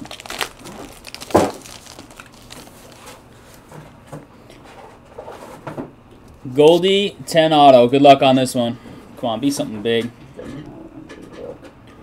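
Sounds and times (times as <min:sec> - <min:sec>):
foil wrapper rustling: 0:00.0 - 0:03.8.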